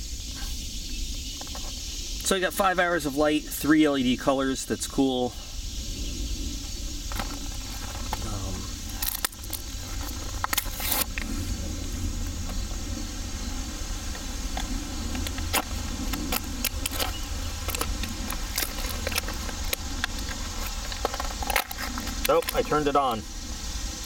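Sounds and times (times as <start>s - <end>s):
steady low rumble: 0.0s - 24.0s
packaging clicks and crackles: 7.1s - 11.3s, 14.1s - 23.0s.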